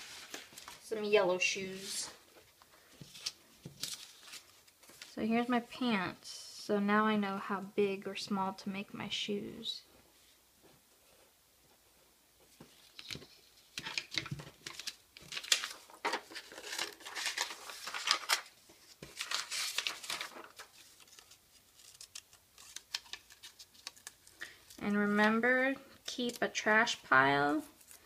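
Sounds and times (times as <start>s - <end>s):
paper rustling and crinkling: 0.0s - 1.1s, 1.7s - 5.1s, 12.5s - 25.4s
scissors snipping paper: 21.1s - 24.2s.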